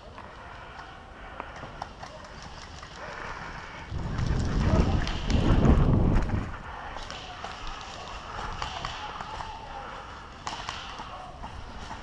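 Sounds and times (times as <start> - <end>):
running footsteps through dry leaves: 2.0 - 6.7.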